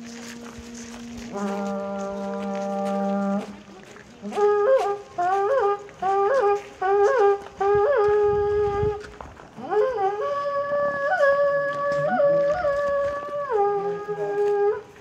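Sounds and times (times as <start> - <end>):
conch-shell trumpet blasts: 0.6 - 3.6.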